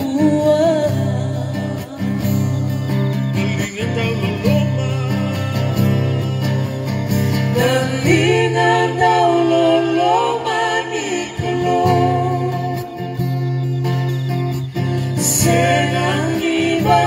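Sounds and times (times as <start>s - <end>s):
women singing together: 0.0s - 2.5s, 7.6s - 13.2s, 15.2s - 17.0s
acoustic guitar strumming: 0.0s - 17.0s.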